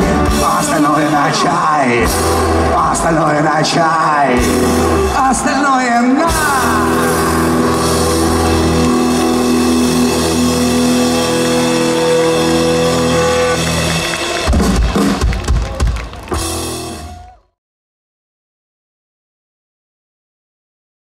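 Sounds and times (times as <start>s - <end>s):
drum kit heavy hits: 4.3s - 5.4s, 6.3s - 17.3s
electric guitars ringing chord: 6.6s - 14.8s.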